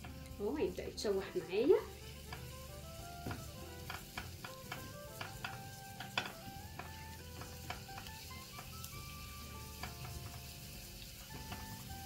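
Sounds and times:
garlic sizzling in oil: 0.0 - 12.0
spoon scraping and tapping pot: 2.1 - 2.6, 3.2 - 8.9, 9.6 - 11.8.

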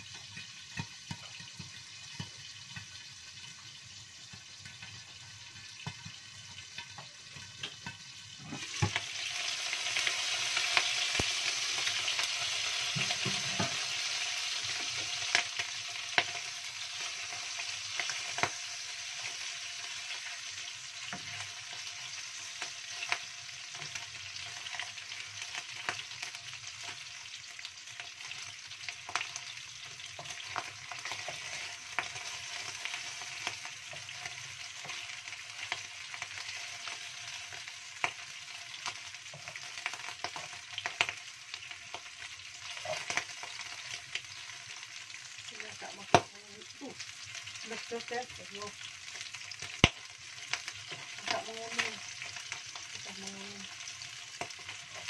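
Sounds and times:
spatula tapping and stirring: 0.0 - 9.0, 12.8 - 13.9, 28.2 - 41.2
fish sizzling in oil: 0.0 - 55.0.

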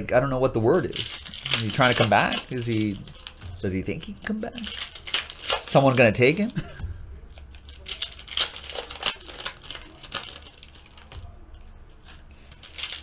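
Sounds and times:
foil wrapper crinkling: 0.8 - 6.7, 7.4 - 13.0
trading cards clicking: 1.0 - 6.5.

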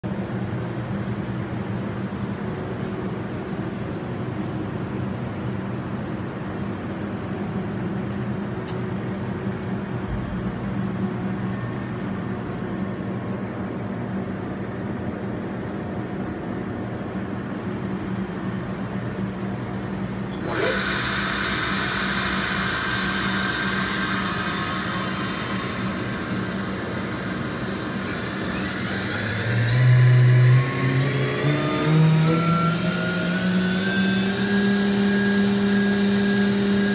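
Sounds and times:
spindle hiss and whine: 17.5 - 36.9
machine humming: 17.6 - 36.9.

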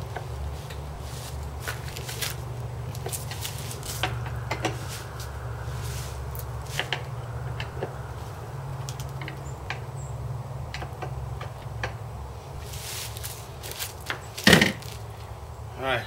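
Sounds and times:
steady low hum: 0.0 - 16.0
plastic wrapping crinkling: 0.6 - 4.2.

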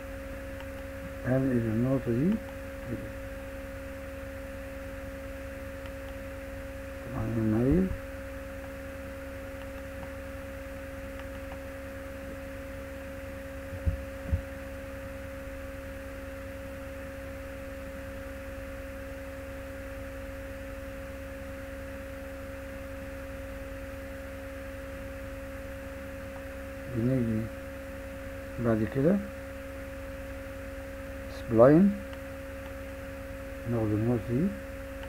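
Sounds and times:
electrical hum: 0.0 - 35.0
low thumps: 13.7 - 14.5.

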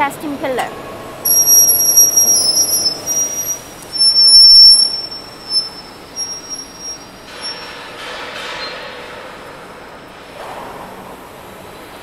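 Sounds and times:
high-pitched metallic squeal: 1.3 - 7.8.

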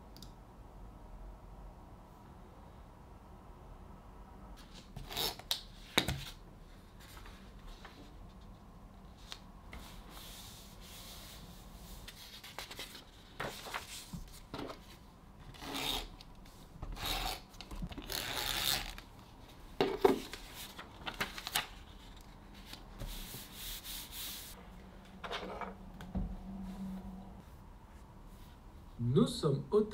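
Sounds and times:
paper rustling and rubbing: 9.1 - 15.0, 20.1 - 24.6.

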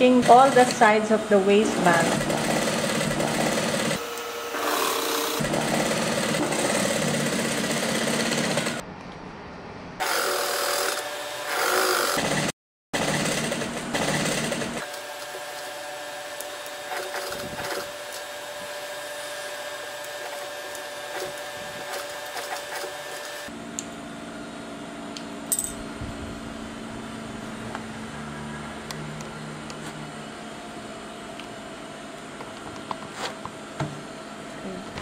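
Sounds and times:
sewing machine motor humming: 0.0 - 8.8, 10.0 - 23.5.

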